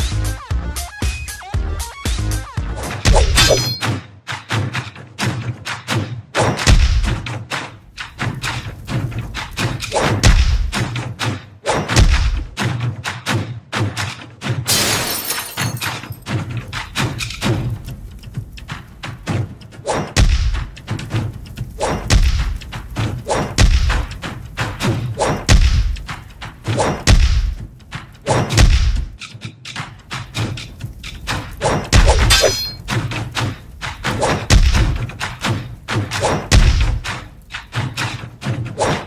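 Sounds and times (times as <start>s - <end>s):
deep drum hits: 28.6s - 29.2s.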